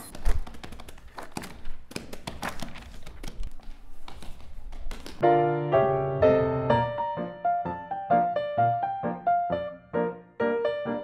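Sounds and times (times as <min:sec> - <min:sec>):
piano notes: 0:05.2 - 0:11.0.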